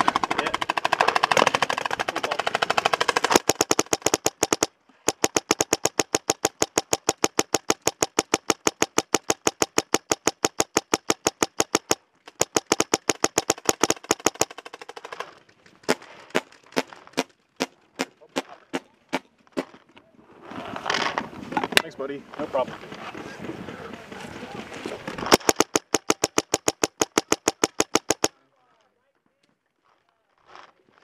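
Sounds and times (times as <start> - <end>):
paintball marker firing rapidly: 0.0 - 15.2, 25.3 - 28.4.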